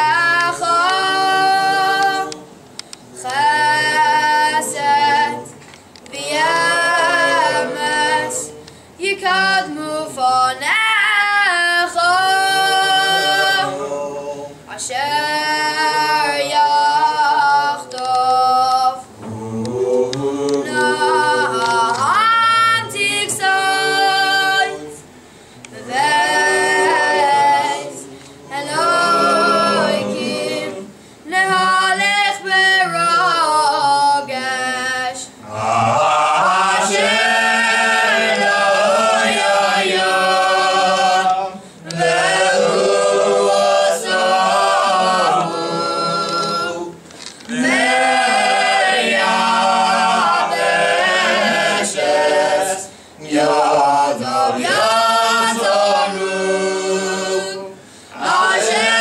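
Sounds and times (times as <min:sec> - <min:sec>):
men singing prayers unaccompanied: 0:00.0 - 0:02.5, 0:03.1 - 0:59.0.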